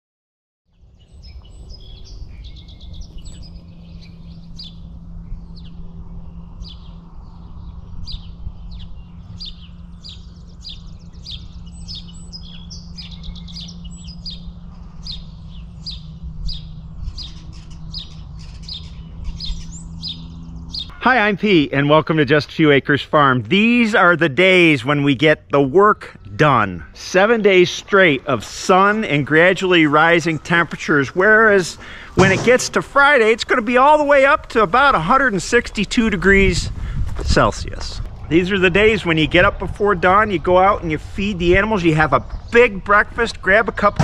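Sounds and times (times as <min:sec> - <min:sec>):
low hum and rumble: 0:00.7 - 0:20.9
songbirds chirping: 0:00.7 - 0:44.0.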